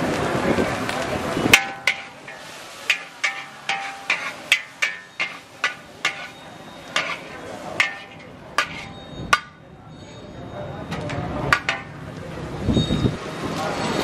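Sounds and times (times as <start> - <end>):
metal spatula clanking on wok: 1.5 - 10.2, 10.9 - 12.1.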